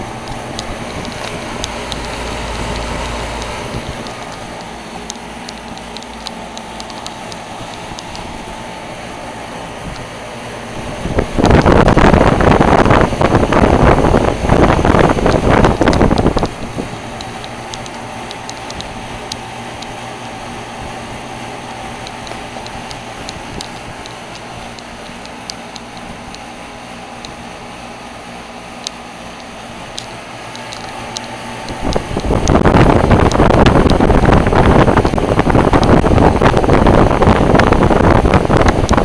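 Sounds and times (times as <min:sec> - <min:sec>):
air rushing over microphone: 0:00.0 - 0:19.6, 0:31.7 - 0:39.0
heat pump humming: 0:00.0 - 0:39.0.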